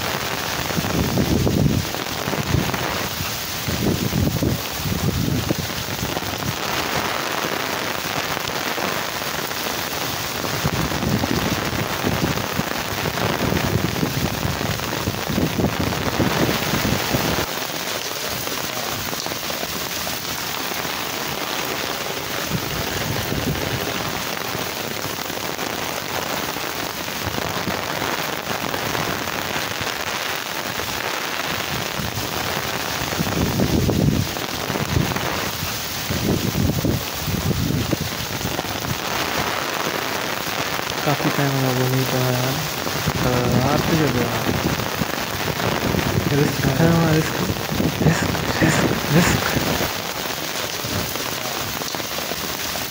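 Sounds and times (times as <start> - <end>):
heavy rain pouring: 0.0 - 52.9
wind buffeting microphone: 0.6 - 6.6, 10.4 - 17.5, 33.0 - 39.1, 43.8 - 46.6, 47.2 - 49.9.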